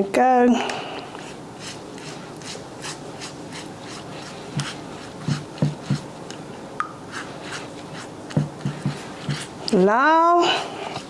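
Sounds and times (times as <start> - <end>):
pastry brush swishing: 1.2 - 6.2, 7.1 - 11.0.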